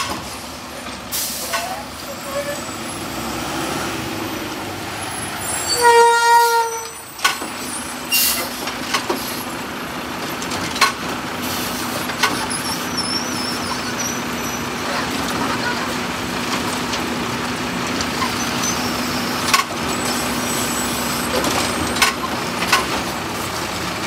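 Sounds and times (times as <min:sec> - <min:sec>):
garbage truck engine and hydraulics: 0:00.0 - 0:24.0
truck horn: 0:05.5 - 0:07.1.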